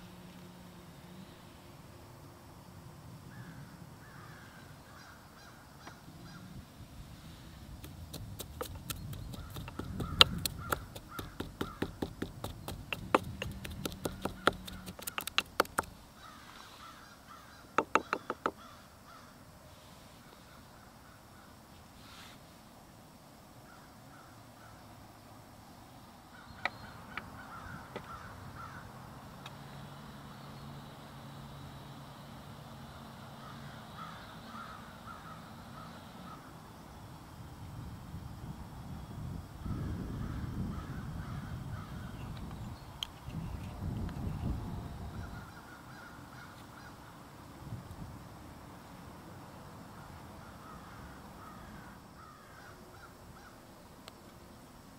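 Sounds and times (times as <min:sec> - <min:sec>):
faint bird calls: 0:03.2 - 0:07.6, 0:08.4 - 0:22.4, 0:23.6 - 0:25.0, 0:26.2 - 0:31.0, 0:32.8 - 0:36.7, 0:39.6 - 0:43.6, 0:45.0 - 0:47.3, 0:49.9 - 0:53.6
pestle pounding in wooden mortar: 0:07.8 - 0:16.0, 0:17.8 - 0:18.6.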